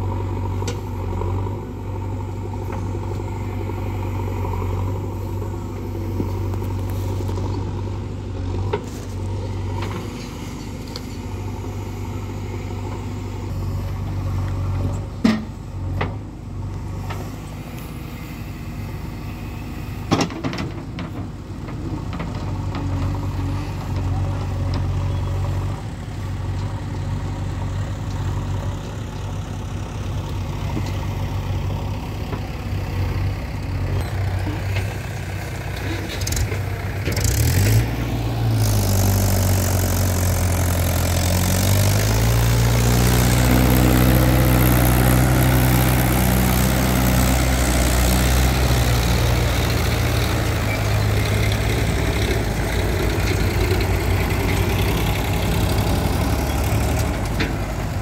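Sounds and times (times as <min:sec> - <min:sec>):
tractor engine revving: 0:00.0 - 0:20.3, 0:22.0 - 0:58.0
diesel engines running: 0:00.0 - 0:58.0.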